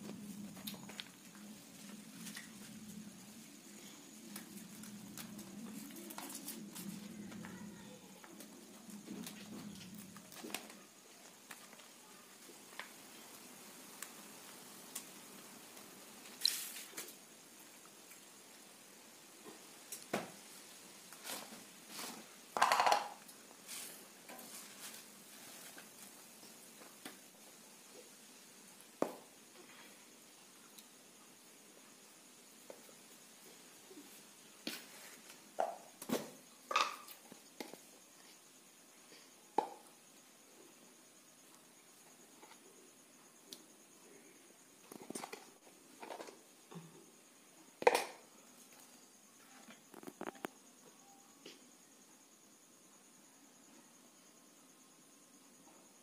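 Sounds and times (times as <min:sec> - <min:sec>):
leaves rustling in hands: 0:00.1 - 0:17.7, 0:23.6 - 0:27.0.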